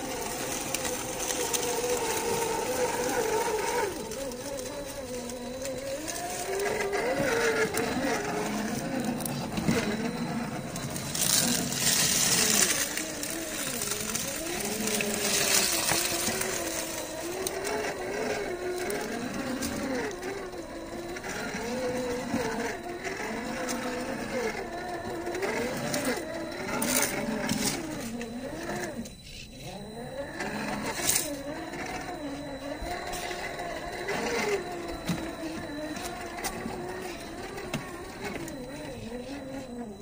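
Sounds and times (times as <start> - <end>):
tyres scraping on stone: 0.0 - 29.6
electric motor whining: 0.0 - 40.0.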